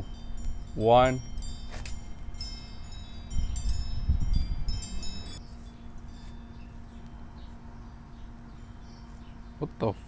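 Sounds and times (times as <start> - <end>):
chimes tinkling: 0.0 - 7.4, 8.5 - 9.1.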